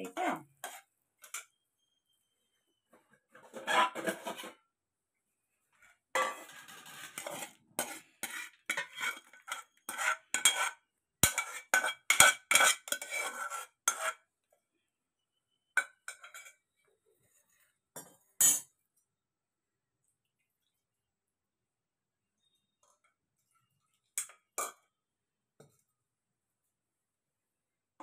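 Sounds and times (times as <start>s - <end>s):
steel spoon scraping metal pot: 0.5s - 2.0s, 3.4s - 4.6s, 6.2s - 14.3s, 15.8s - 16.7s.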